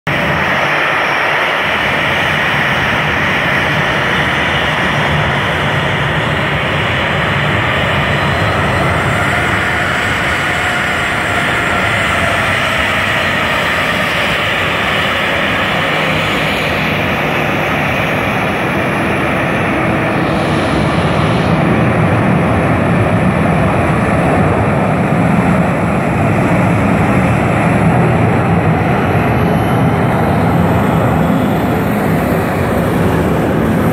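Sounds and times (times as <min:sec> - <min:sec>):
faint engine whine: 0:00.1 - 0:33.9
jet engines rushing and hissing: 0:00.1 - 0:33.9.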